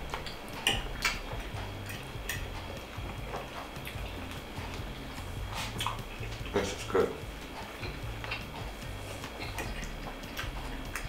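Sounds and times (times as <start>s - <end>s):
low hum: 0.0s - 11.0s
man chewing: 0.0s - 11.0s
fork clicking on plate: 0.1s - 1.2s.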